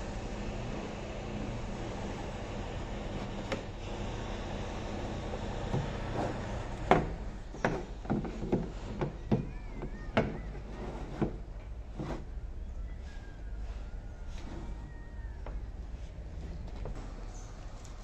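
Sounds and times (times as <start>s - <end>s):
steady low hum: 0.0s - 18.0s
plastic rocking toy knocking floor: 6.9s - 11.4s.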